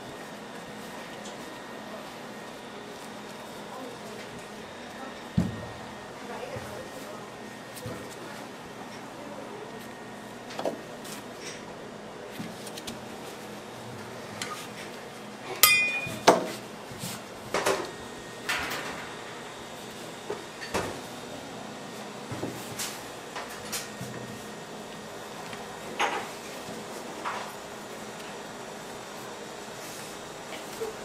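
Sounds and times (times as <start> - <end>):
sharp ringing clink: 15.6 - 16.3.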